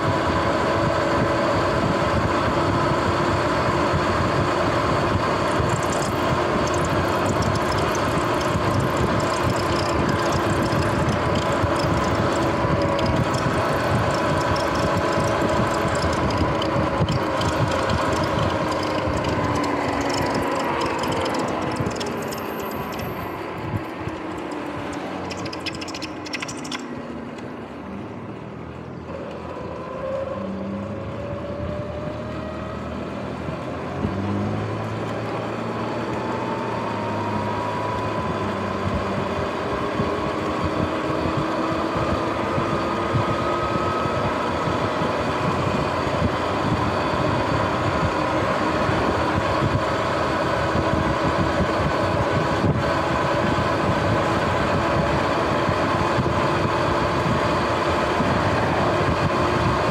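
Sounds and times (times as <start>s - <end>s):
electric motor whine rising: 4.4s - 27.7s.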